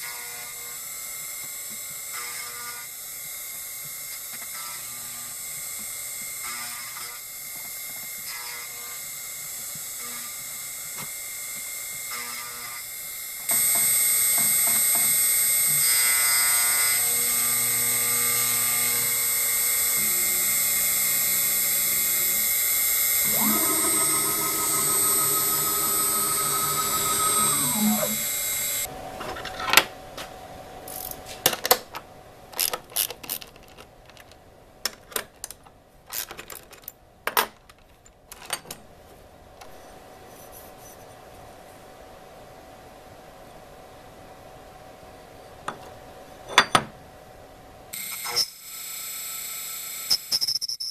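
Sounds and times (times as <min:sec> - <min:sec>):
router spindle whining: 0:16.9 - 0:28.9
stepper motor tones: 0:17.1 - 0:28.9.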